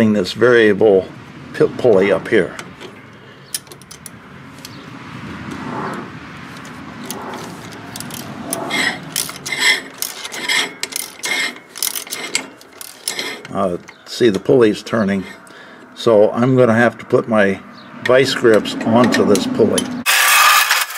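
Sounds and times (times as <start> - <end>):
ratchet rubbing scrape: 5.5 - 13.8, 20.1 - 20.9
ratchet pawl clicks: 8.0 - 13.6.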